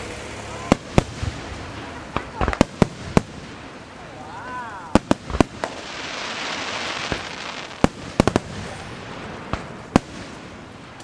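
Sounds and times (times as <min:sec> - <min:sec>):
firework crackling hiss: 0:00.0 - 0:11.0
firework shells bursting: 0:04.9 - 0:11.0.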